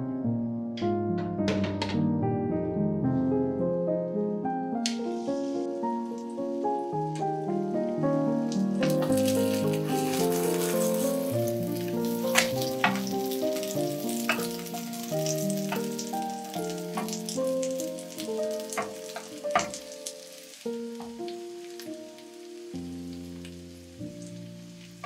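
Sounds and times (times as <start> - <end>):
background music with held notes: 0.0 - 25.0
pancake sizzling in oil: 8.2 - 25.0.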